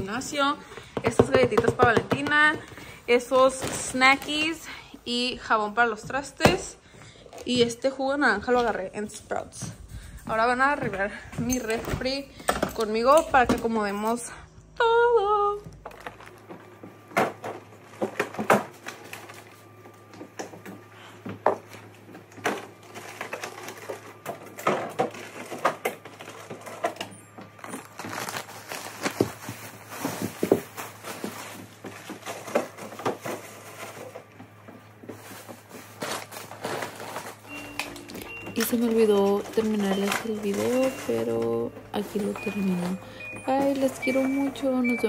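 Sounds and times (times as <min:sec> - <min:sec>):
plastic packaging rustling: 0:02.2 - 0:05.5, 0:15.7 - 0:45.0
plastic bins clattering on shelves: 0:10.3 - 0:14.1, 0:15.7 - 0:19.5, 0:20.2 - 0:45.0.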